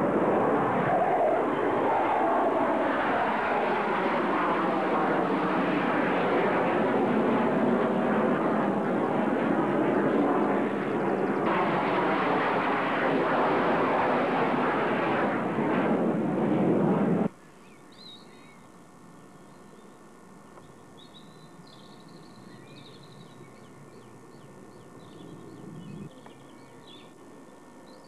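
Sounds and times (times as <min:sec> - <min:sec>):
jet roaring overhead: 0:00.0 - 0:17.3.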